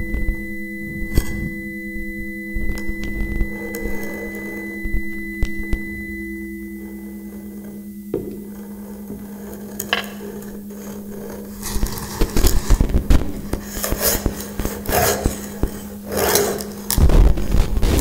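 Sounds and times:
steady low hum: 0:00.0 - 0:18.0
scraping rasping and knocking: 0:06.9 - 0:18.0.

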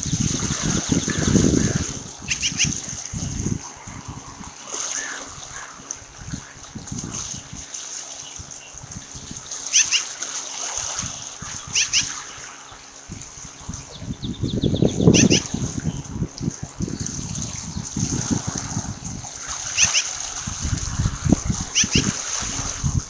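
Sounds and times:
wind buffeting microphone: 0:00.0 - 0:23.0
osprey chirps: 0:02.2 - 0:02.8, 0:09.7 - 0:10.1, 0:11.6 - 0:12.8, 0:13.8 - 0:16.1, 0:19.7 - 0:20.1, 0:21.6 - 0:22.2.

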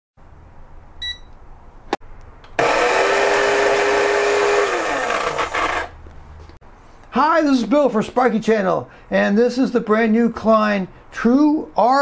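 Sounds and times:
short beep: 0:01.0 - 0:01.3
coffee grinder whining: 0:02.6 - 0:06.0.

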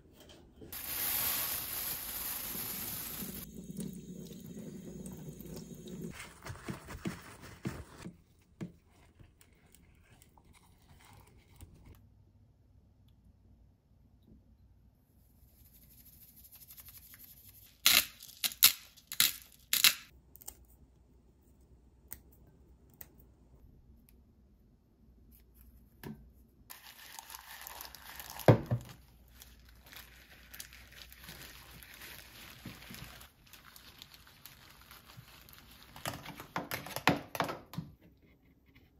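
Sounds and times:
plastic bag crinkling: 0:00.7 - 0:03.5, 0:26.7 - 0:36.5.

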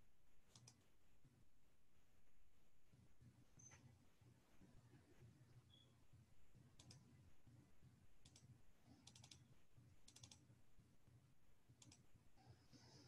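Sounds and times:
faint low hum: 0:00.0 - 0:13.0
computer keyboard clicks: 0:00.5 - 0:00.8, 0:06.8 - 0:07.1, 0:08.2 - 0:10.5, 0:11.8 - 0:12.0.

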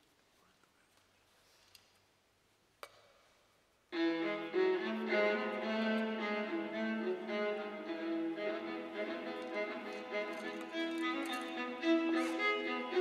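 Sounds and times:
solo violin melody: 0:04.0 - 0:13.0.

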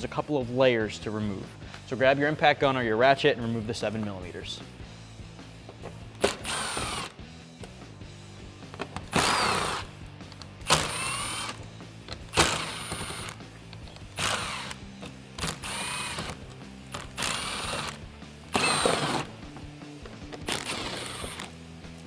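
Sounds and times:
cordless impact gun bursts: 0:10.6 - 0:11.6, 0:12.3 - 0:13.4, 0:14.2 - 0:14.8, 0:15.4 - 0:16.4, 0:17.0 - 0:19.3.

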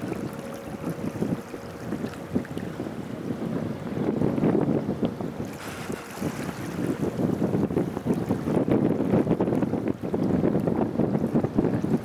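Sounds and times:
small waves washing on sand: 0:00.0 - 0:00.4, 0:05.4 - 0:07.4
wind buffeting microphone: 0:00.0 - 0:12.0.

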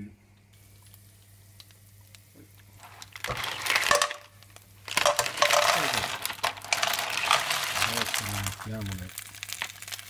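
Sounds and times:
oil sizzling: 0:00.5 - 0:10.0
shells clattering onto pan: 0:02.8 - 0:08.7.

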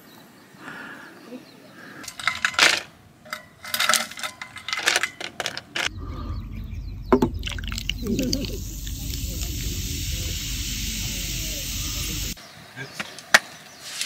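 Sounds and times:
clicks of small hard objects: 0:02.0 - 0:05.9
steady low rumble: 0:05.9 - 0:12.4.

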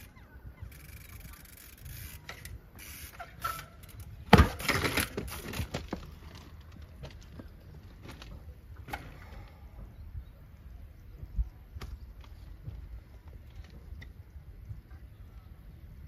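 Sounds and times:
bike clattering and scraping: 0:00.0 - 0:10.0, 0:11.2 - 0:14.9
bike knocking against metal rail: 0:03.2 - 0:06.0.

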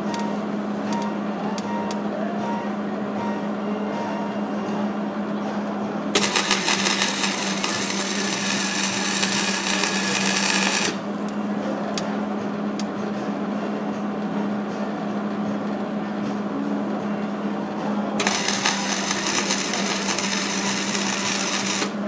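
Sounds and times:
steady hum: 0:00.0 - 0:22.0
welding arc crackling and hissing: 0:06.2 - 0:11.4, 0:18.2 - 0:22.0.

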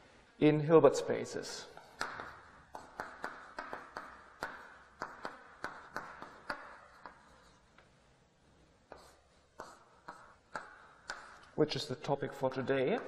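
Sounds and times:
chalk tapping on blackboard: 0:01.8 - 0:07.6, 0:08.9 - 0:13.0
chalk scratching: 0:01.8 - 0:07.7, 0:08.9 - 0:13.0.

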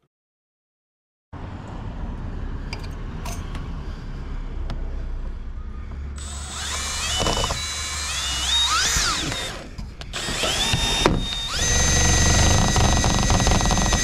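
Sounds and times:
steady background noise: 0:01.4 - 0:14.0
cordless drill driving screw: 0:06.2 - 0:14.0.

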